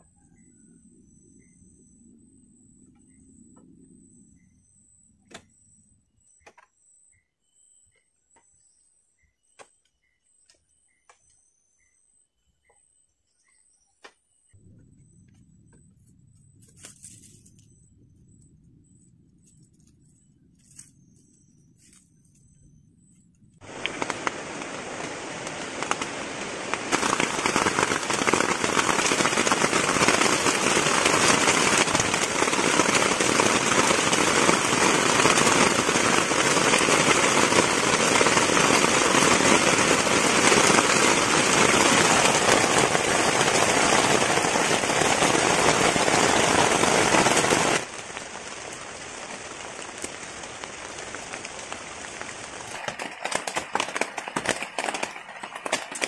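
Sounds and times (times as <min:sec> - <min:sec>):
heavy rain falling: 0:23.6 - 0:56.0.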